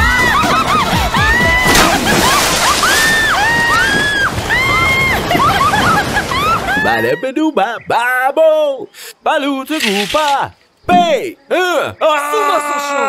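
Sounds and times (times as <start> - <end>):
high calls: 9.7 - 13.0.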